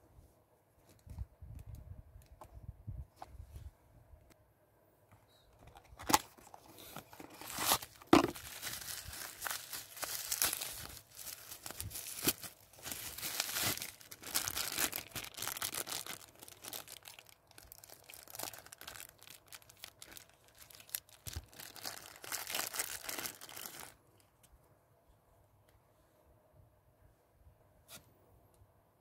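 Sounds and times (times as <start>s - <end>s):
plastic packaging crinkling: 5.7s - 24.0s.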